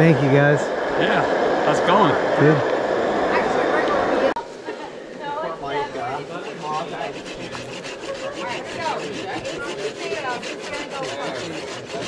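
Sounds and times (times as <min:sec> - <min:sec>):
hand saw cutting dry wood: 0:06.0 - 0:12.0.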